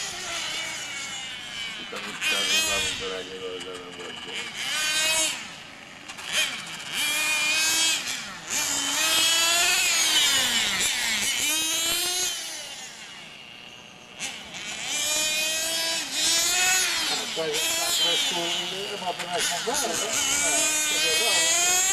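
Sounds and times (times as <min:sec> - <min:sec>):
small engine revving and buzzing: 0:00.0 - 0:21.9.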